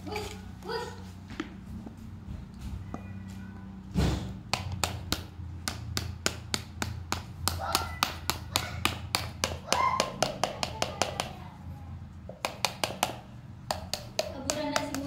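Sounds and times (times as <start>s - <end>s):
heavy thud: 3.9s - 4.4s.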